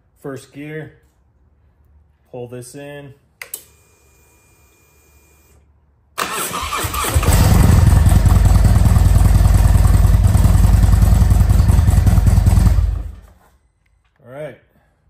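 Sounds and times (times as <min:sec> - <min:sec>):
motorcycle starter cranking: 0:06.2 - 0:10.4
motorcycle engine idling: 0:07.3 - 0:13.3.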